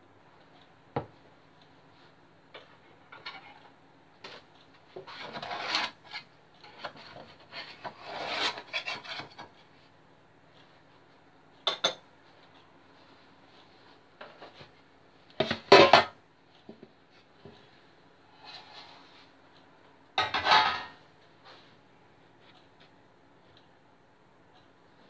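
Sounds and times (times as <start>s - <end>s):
knife scraping metal tin: 5.0s - 9.5s.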